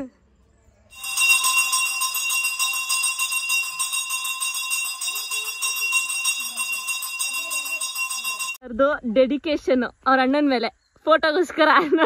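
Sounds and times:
temple bells ringing rapidly: 0.9s - 8.6s.

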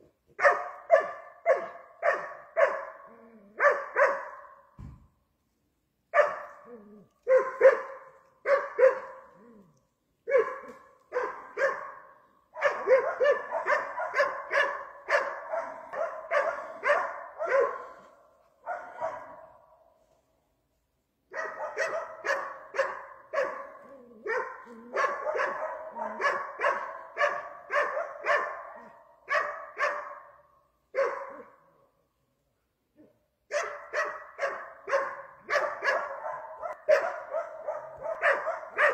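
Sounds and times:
dog barking: 0.4s - 4.7s, 6.1s - 19.9s, 21.3s - 31.9s, 33.0s - 38.9s.

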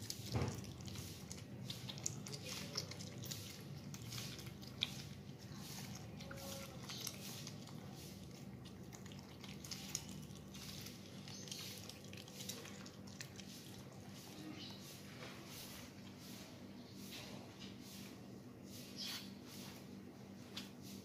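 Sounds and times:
otter chewing wetly: 0.0s - 16.2s.

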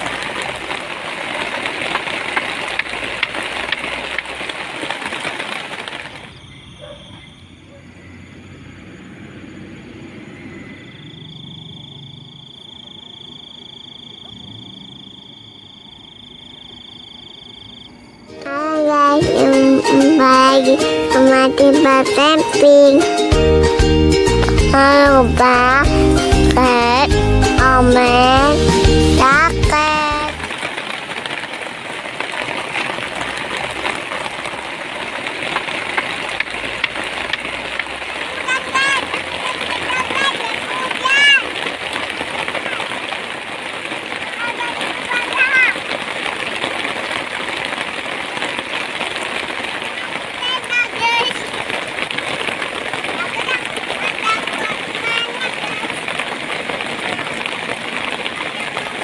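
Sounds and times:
heavy rain: 0.0s - 59.0s
frogs trilling: 6.0s - 18.9s.

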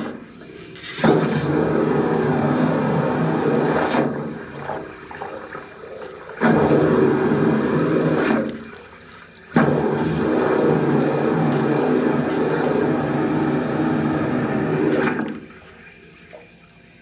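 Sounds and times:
motor hum: 0.0s - 17.0s
water jet spraying: 0.8s - 4.8s, 6.4s - 8.7s, 9.6s - 15.3s.

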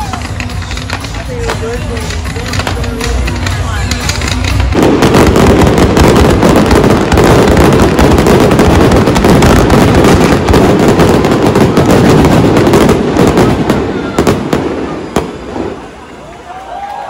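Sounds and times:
fireworks crackling and popping: 0.0s - 17.0s.

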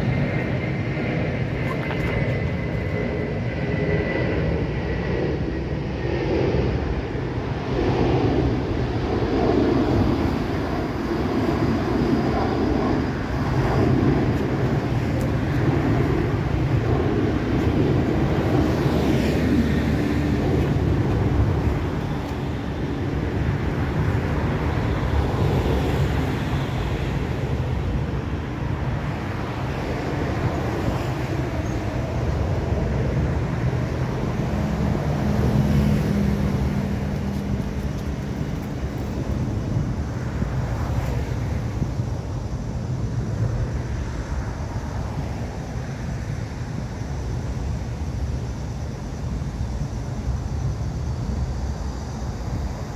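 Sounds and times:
rumble of passing cars: 0.0s - 52.9s
passing vehicle engine hum: 12.9s - 41.9s.

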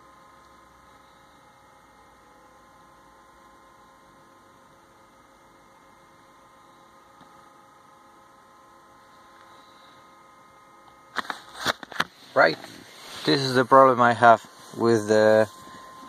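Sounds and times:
electrical hum: 0.0s - 16.0s
background hiss: 12.1s - 16.0s.

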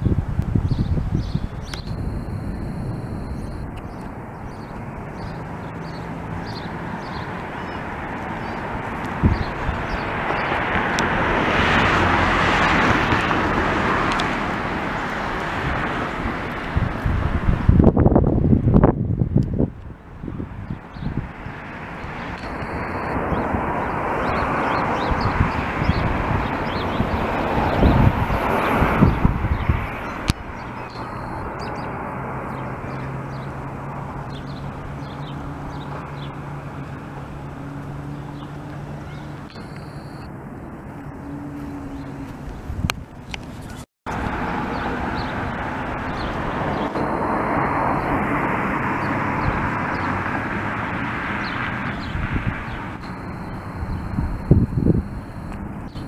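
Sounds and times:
motor traffic rumble: 0.0s - 56.0s
passing vehicle rushing: 0.0s - 56.0s
faint bird chirps: 0.7s - 7.2s, 30.6s - 31.9s, 39.0s - 40.3s.

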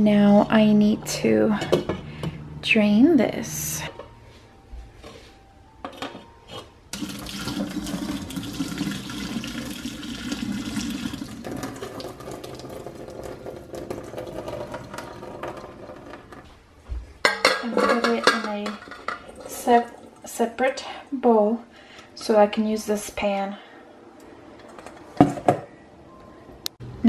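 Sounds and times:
water pouring into a steel sink: 7.0s - 16.4s
pan knocking against metal bowl: 17.2s - 19.2s.

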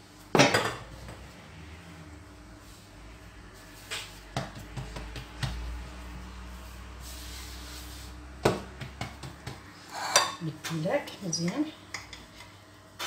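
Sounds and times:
flour brushed across countertop: 0.9s - 10.1s
hands patting dough: 3.6s - 6.5s, 7.4s - 9.9s.

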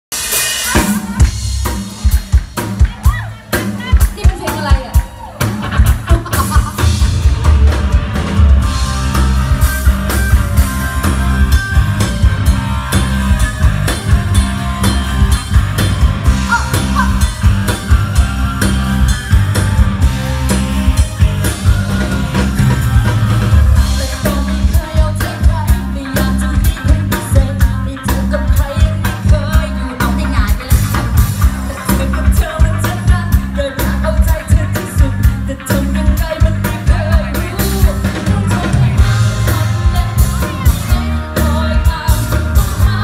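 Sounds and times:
drum kit beat: 0.1s - 43.0s
live rock band playing: 0.1s - 43.0s.

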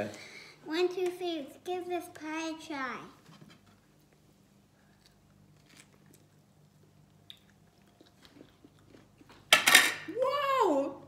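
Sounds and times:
people chewing and crunching: 4.0s - 9.5s.

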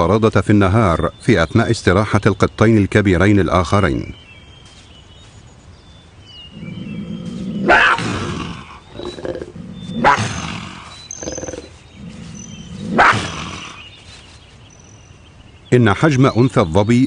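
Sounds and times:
big cat growling and snarling: 6.5s - 13.9s.

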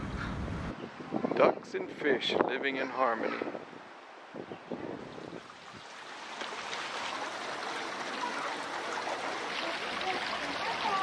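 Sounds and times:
stream water rushing: 3.7s - 11.0s.

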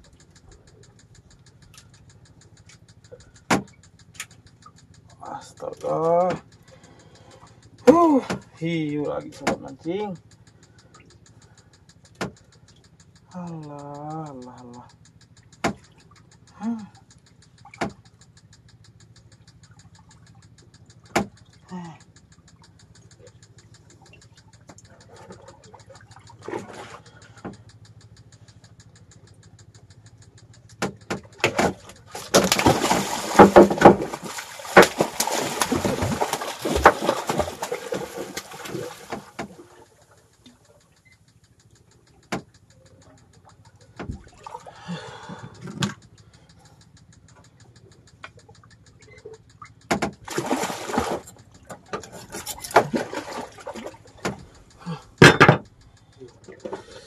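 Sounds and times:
low engine hum: 0.0s - 57.0s
shark splashing in water: 32.2s - 39.6s, 50.3s - 51.3s.

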